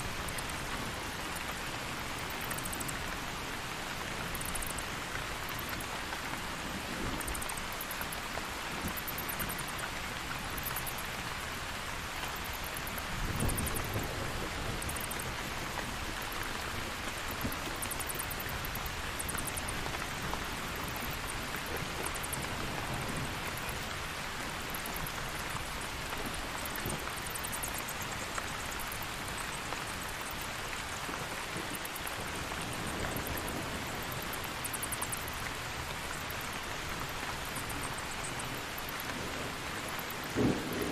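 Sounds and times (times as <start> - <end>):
steady rain: 0.0 - 40.9
low rumble of thunder: 13.0 - 15.4, 39.2 - 40.9.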